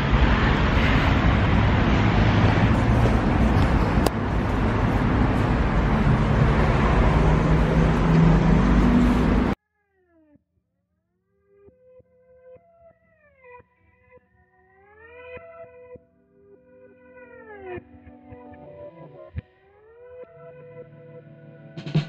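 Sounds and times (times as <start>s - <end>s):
passing cars: 0.0s - 9.6s.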